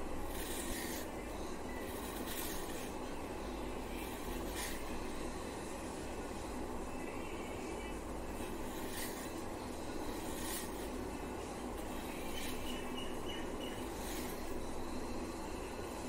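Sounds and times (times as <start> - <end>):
low background noise: 0.0 - 16.0
knife scraping food: 0.2 - 3.0, 3.9 - 4.9, 8.4 - 9.4, 10.0 - 11.0, 11.8 - 14.6.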